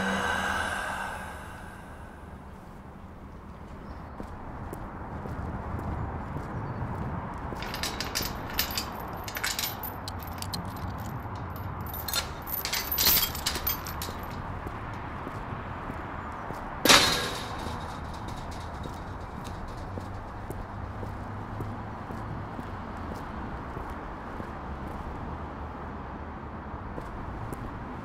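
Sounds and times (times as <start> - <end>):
chain rattling against mesh gate: 7.5 - 15.0, 16.8 - 20.5
metal gate clanging: 7.6 - 14.7, 16.8 - 20.4.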